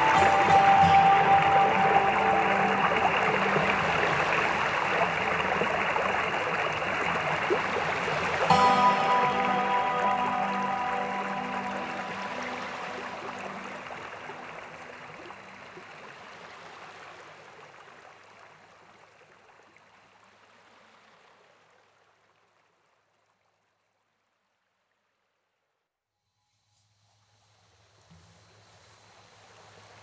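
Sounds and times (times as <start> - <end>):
waterfall rushing water: 0.0 - 17.6.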